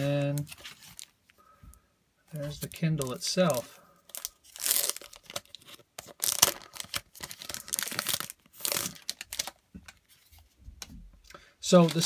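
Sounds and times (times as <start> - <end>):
plastic wrapping crinkling: 2.3 - 10.5, 11.6 - 12.0.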